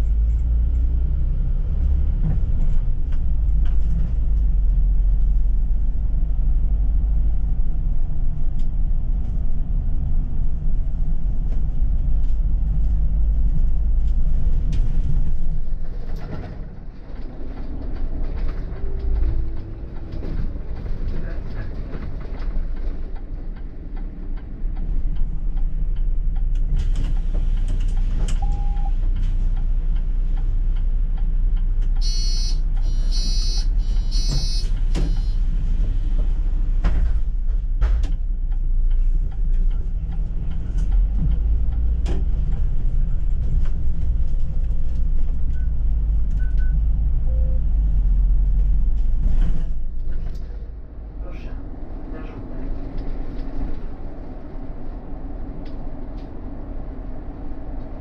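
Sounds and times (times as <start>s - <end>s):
bus engine and road rumble: 0.0s - 58.0s
high-pitched beeping: 32.0s - 35.4s.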